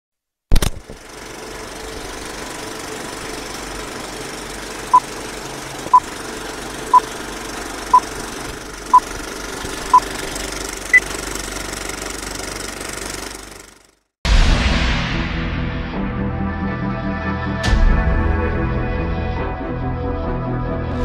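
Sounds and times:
film projector clattering: 0.6s - 14.0s.

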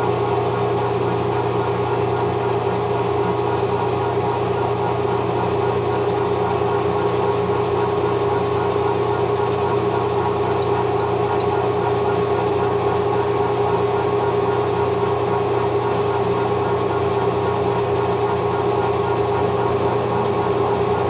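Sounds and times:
metal lathe whining: 0.1s - 21.0s.

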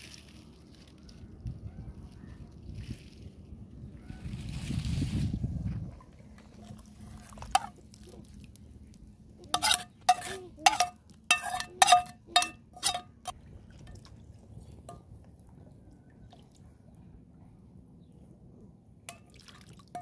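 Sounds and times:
frying pan clinking against pot: 9.6s - 13.3s.

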